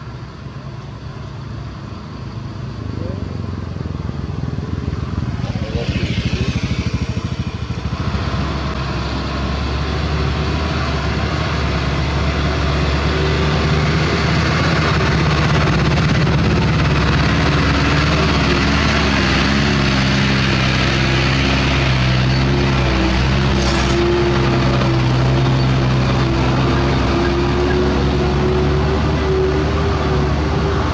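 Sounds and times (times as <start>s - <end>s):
diesel truck engines passing: 0.0s - 30.9s
motorcycle engine passing: 4.2s - 9.6s.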